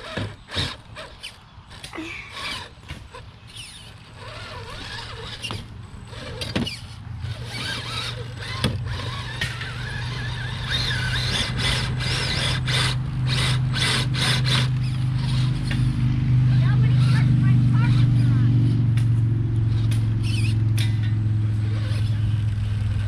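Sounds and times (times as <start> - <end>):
low motor hum: 0.0 - 23.0.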